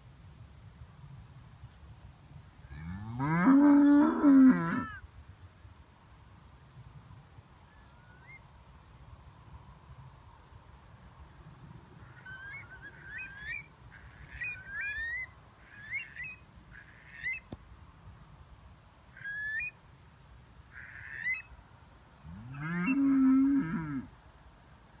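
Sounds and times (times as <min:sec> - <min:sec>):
bird high gliding calls: 0:07.7 - 0:08.4, 0:12.0 - 0:17.6, 0:19.1 - 0:19.8, 0:20.7 - 0:21.5
cow mooing: 0:22.3 - 0:24.1.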